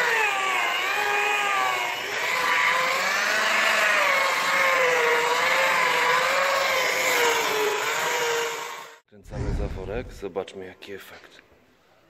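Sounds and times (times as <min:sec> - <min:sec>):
electric polisher motor whine: 0:00.0 - 0:09.0.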